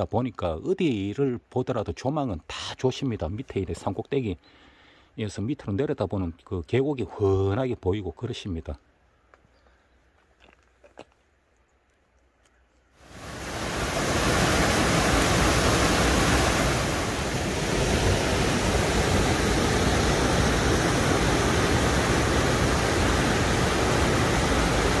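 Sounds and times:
stream rushing over rocks: 0:13.0 - 0:25.0.

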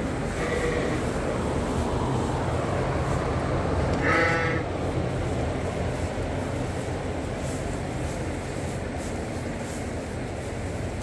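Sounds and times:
sheep bleating: 0:00.3 - 0:01.0, 0:04.0 - 0:04.6.

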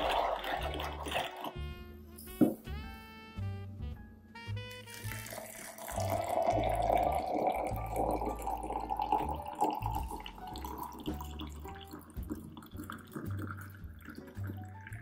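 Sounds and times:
water pouring and splashing: 0:00.0 - 0:01.7, 0:04.8 - 0:15.0.

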